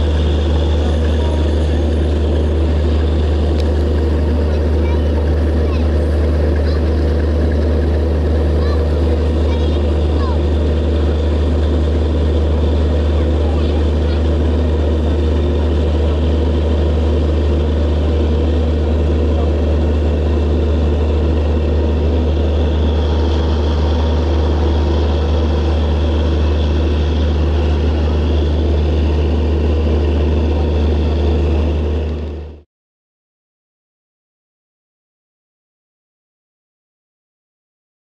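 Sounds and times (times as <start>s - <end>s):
diesel locomotive engine drone: 0.0s - 32.7s.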